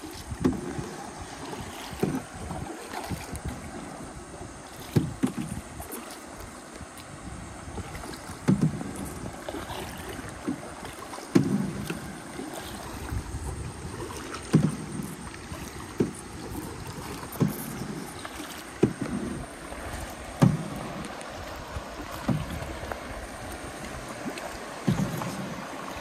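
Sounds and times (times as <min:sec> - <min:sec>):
kayak paddle splashing: 0:00.0 - 0:26.0
rush of water: 0:00.0 - 0:26.0.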